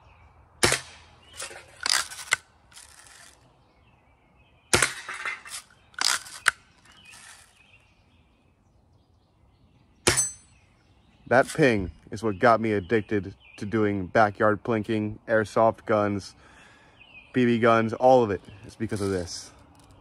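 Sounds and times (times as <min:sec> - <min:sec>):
air rifle shot: 0:00.6 - 0:01.1.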